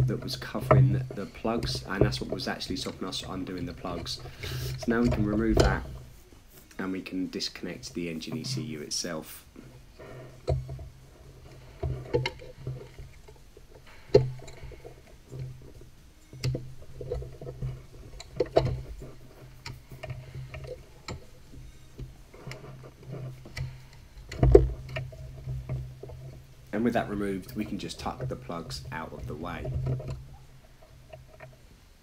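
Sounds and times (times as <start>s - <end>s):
module thumping: 0.0s - 6.2s
steady low hum: 0.0s - 32.0s.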